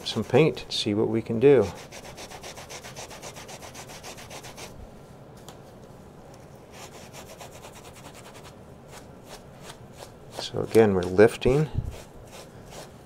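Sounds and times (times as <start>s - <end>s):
sponge scrubbing wet paint: 6.8s - 13.0s.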